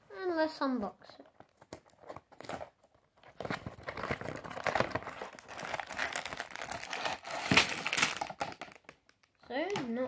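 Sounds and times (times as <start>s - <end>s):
cardboard box being opened: 1.9s - 8.6s
plastic bags crinkling: 3.3s - 9.4s.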